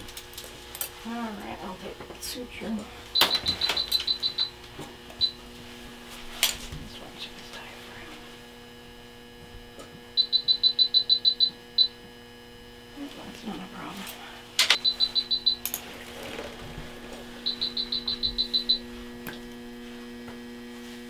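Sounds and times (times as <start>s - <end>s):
steady electrical hum: 0.0s - 21.0s
short high electronic beeps: 3.2s - 4.5s, 10.2s - 11.9s, 14.8s - 15.6s, 17.4s - 18.8s.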